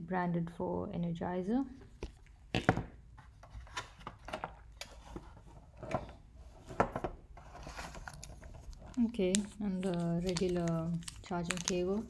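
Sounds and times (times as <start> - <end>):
plastic packaging clicks and taps: 8.2 - 12.0.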